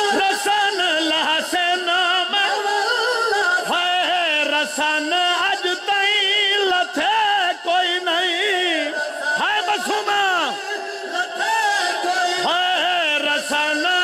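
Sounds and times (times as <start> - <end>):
man singing a lament: 0.0 - 14.0.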